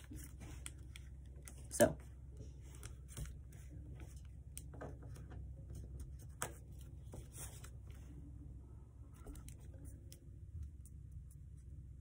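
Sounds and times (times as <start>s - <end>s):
paper rustling and creasing: 2.6s - 8.1s.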